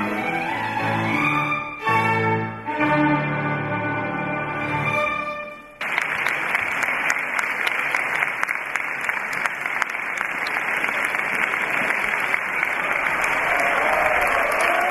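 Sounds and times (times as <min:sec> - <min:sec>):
audience applauding: 0:05.8 - 0:14.9.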